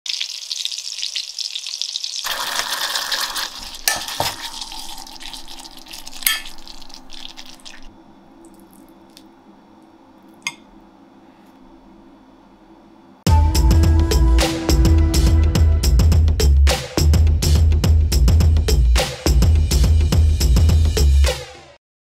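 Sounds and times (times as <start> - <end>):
pot bubbling and hissing: 0.1 - 10.6
metal utensils clinking on pot: 2.5 - 6.8.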